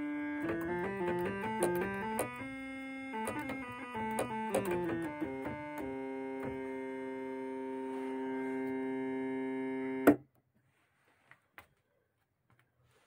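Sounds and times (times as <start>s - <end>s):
synthesizer holding steady note: 0.0s - 10.1s.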